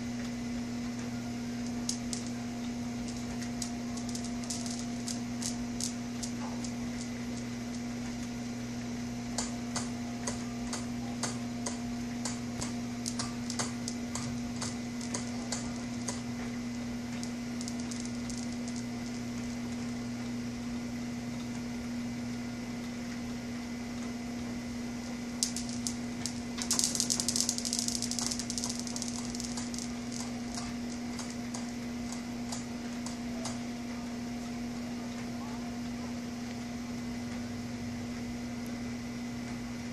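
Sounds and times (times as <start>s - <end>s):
steady low hum: 0.0s - 39.9s
newton's cradle balls clicking: 1.6s - 8.3s, 9.4s - 20.0s, 25.4s - 33.6s.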